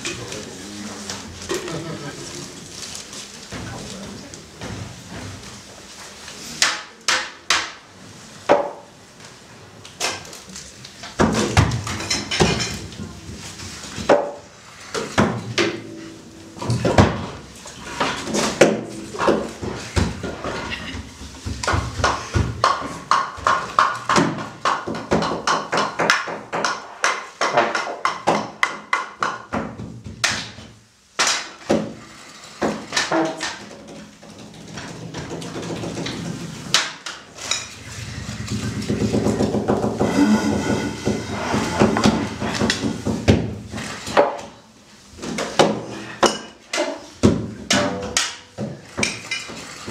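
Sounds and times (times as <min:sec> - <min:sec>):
clattering percussion and junk objects: 0:11.1 - 0:25.3.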